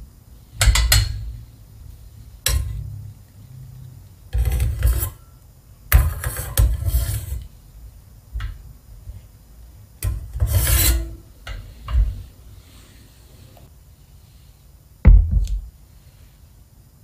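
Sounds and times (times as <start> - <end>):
metal ladle scraping saucepan: 4.3 - 5.2, 6.0 - 7.5, 10.0 - 11.6.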